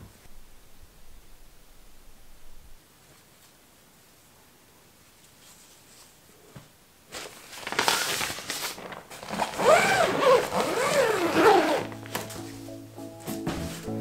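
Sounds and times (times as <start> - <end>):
zipper being pulled: 9.2 - 12.2.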